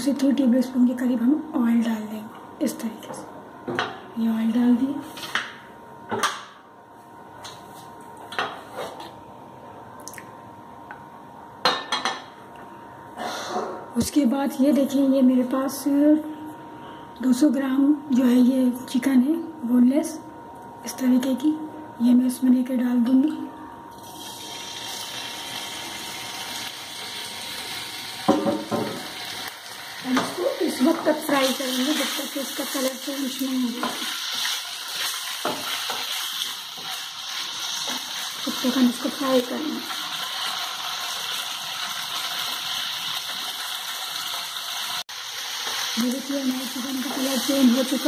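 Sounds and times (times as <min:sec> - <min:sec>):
chicken sizzling in frying pan: 0:24.1 - 0:48.0
metal knock on frying pan: 0:28.3 - 0:29.0.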